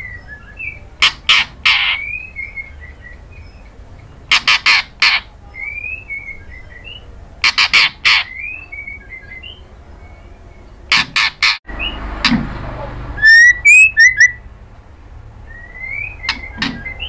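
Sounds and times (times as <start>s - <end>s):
bird harsh rasping calls: 13.2s - 14.4s
short rising whistles: 13.2s - 14.4s
soft bird chirps: 13.2s - 14.4s.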